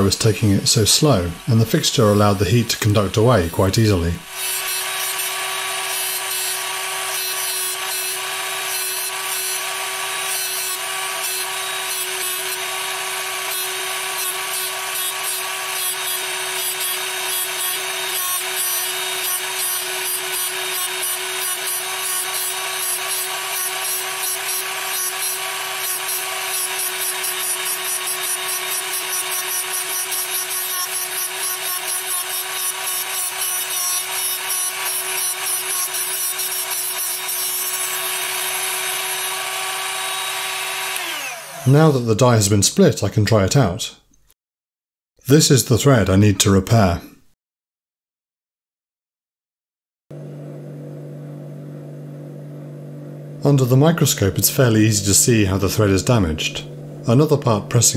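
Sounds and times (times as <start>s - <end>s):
cutoff wheel grinding steel: 0.0s - 41.9s
rotary tool motor whine: 4.2s - 41.7s.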